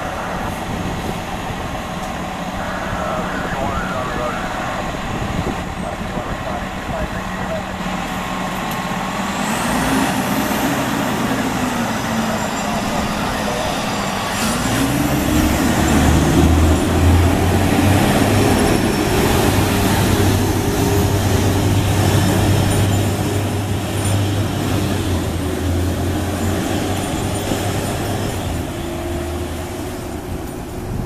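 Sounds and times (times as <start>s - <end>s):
truck diesel engine drone: 0.0s - 31.0s.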